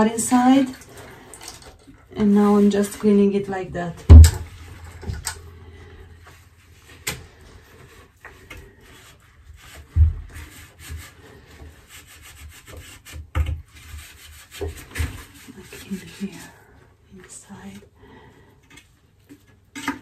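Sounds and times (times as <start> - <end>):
pipe cleaner scraping plastic tube: 4.4 - 16.6.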